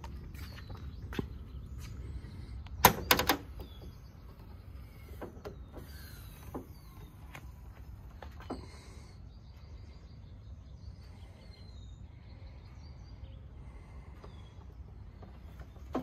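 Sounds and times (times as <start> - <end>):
birds chirping faintly: 0.0 - 16.0
sharp clicks and knocks: 2.7 - 3.9.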